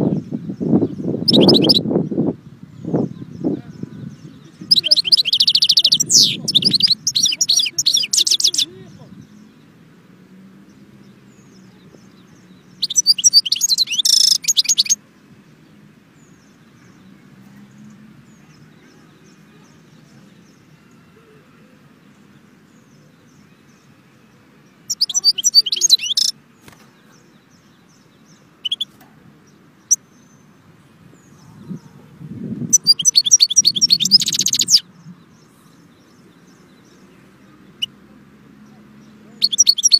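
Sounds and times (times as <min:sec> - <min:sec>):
finch twittering song: 0:00.0 - 0:21.3, 0:21.9 - 0:39.9
bird call notes: 0:01.3 - 0:01.8, 0:24.9 - 0:26.4, 0:32.7 - 0:34.8, 0:39.4 - 0:39.9.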